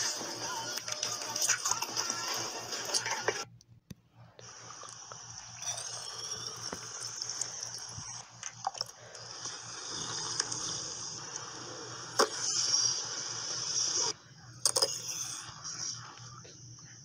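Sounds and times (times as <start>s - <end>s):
steady hiss: 9.1s - 14.2s.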